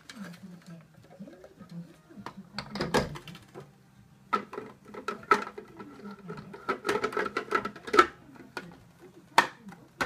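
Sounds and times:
plastic juicer parts knocking: 4.3 - 8.8.

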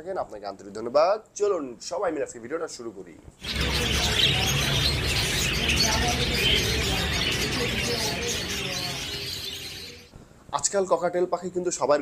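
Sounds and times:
small birds chirping: 3.4 - 10.1.

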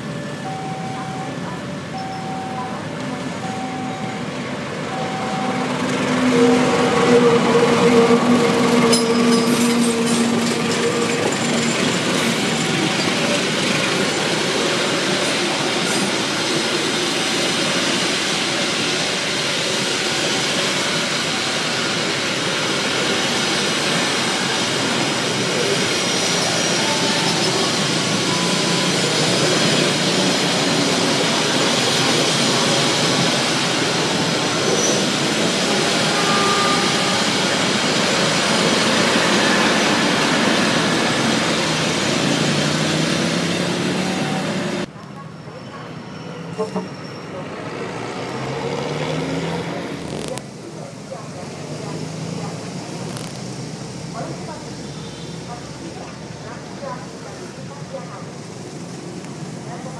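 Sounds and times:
train wheels on rails: 1.8 - 46.0.

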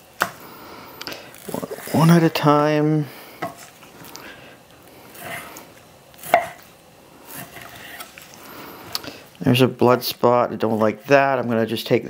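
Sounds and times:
knife slicing meat: 7.2 - 8.2.

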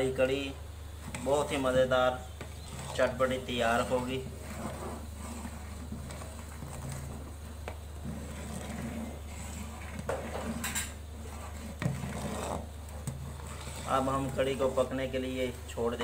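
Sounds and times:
steady low hum: 0.0 - 16.0
ladle scraping steel pot: 1.0 - 15.2.

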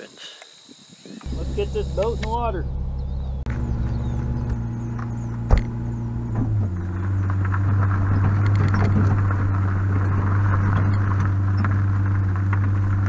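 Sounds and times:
tyres on gravel: 1.2 - 13.0
vehicle engine running: 1.2 - 13.0.

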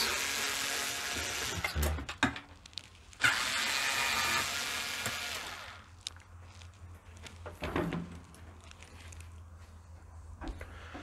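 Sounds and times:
cordless screwdriver whirring: 3.2 - 5.9.

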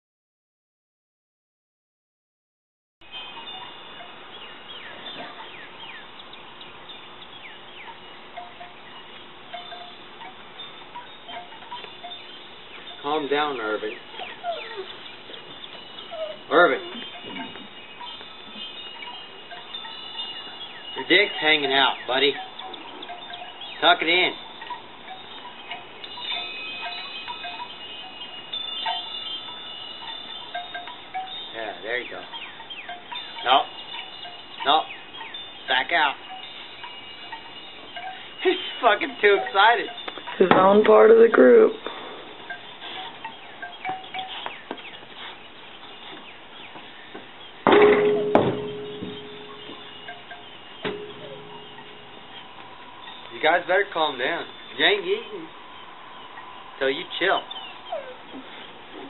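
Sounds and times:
birds chirping: 3.0 - 59.0
wind chime ringing: 3.0 - 59.0.

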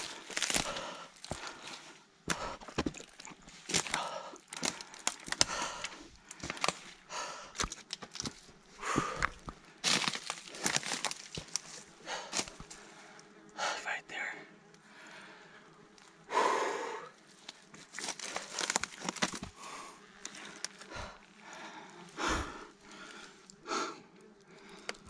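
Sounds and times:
footsteps crunching on pine needles: 0.0 - 1.9, 7.6 - 12.8, 17.3 - 21.3
twigs snapping: 0.0 - 12.8, 17.4 - 19.6, 20.2 - 21.3, 24.4 - 25.0.

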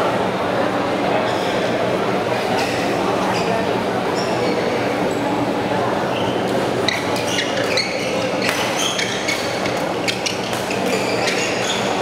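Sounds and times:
shoes squeaking on court: 3.3 - 4.8, 6.1 - 12.0
rackets striking shuttlecock: 8.4 - 11.0.

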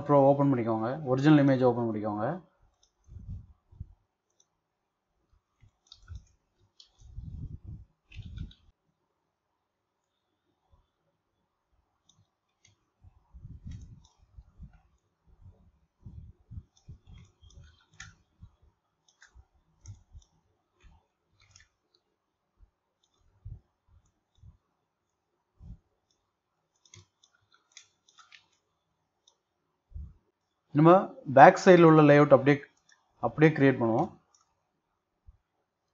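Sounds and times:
mouse and keyboard clicking: 2.7 - 3.3, 5.6 - 7.3, 8.1 - 8.7, 12.0 - 12.9, 13.5 - 15.1, 16.6 - 22.1, 23.0 - 23.3, 25.7 - 29.4
dull low thumps: 7.1 - 8.6, 13.1 - 14.8, 15.4 - 17.0.

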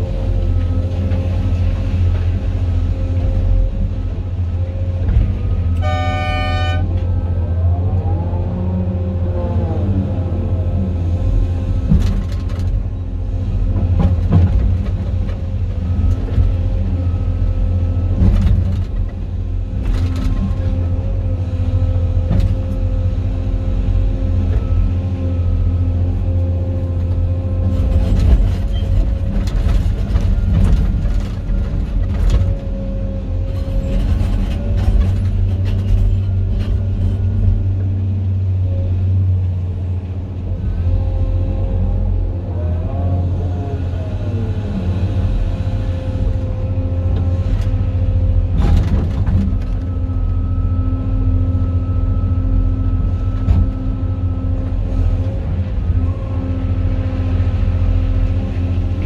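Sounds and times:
diesel engine rumbling with whine: 0.0 - 59.0.

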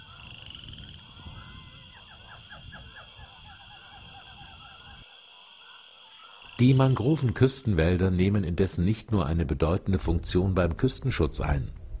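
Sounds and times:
bird calls: 0.0 - 7.0.

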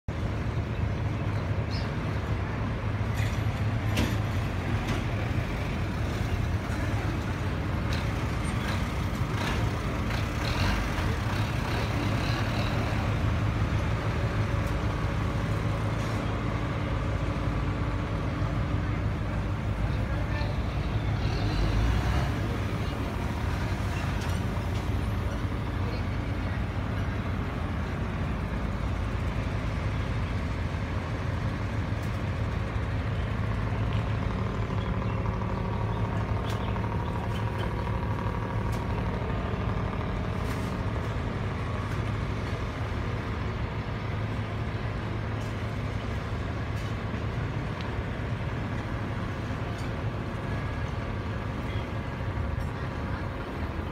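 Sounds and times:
engines droning: 0.1 - 53.9
faint voices: 50.6 - 53.9.

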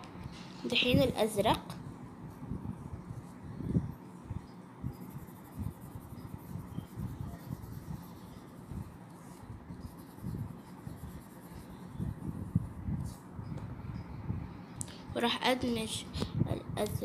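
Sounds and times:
pencil scratching on paper: 4.9 - 12.8.

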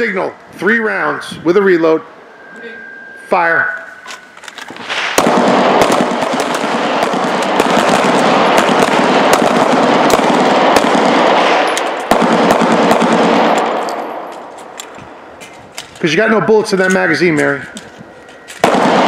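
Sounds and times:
volley of pistol shots: 4.8 - 14.3, 18.6 - 19.0.

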